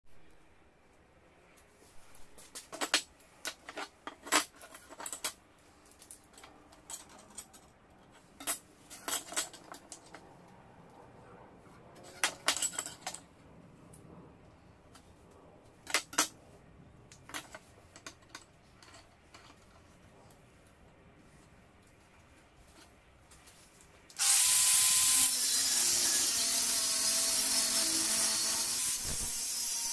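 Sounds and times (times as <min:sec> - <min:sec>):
steel bars clinking and knocking: 0:06.0 - 0:10.2, 0:12.0 - 0:13.4.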